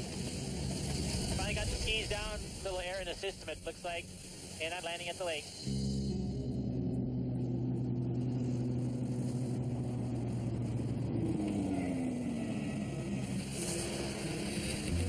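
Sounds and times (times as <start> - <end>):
hiss: 0.0 - 5.9, 13.2 - 15.0
light aircraft engine and propeller: 0.0 - 15.0.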